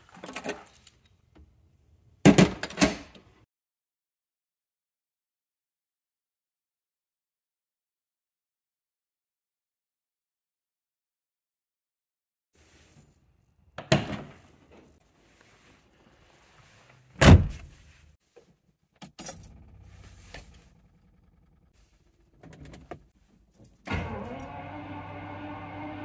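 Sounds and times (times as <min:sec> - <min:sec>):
keys rattling: 0:19.0 - 0:19.8, 0:22.4 - 0:23.9
car engine cranking and running: 0:19.3 - 0:23.1, 0:23.9 - 0:26.0.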